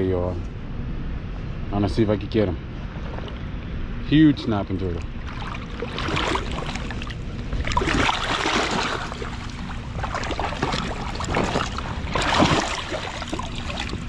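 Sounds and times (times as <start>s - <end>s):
river water sloshing and splashing: 5.0s - 14.0s.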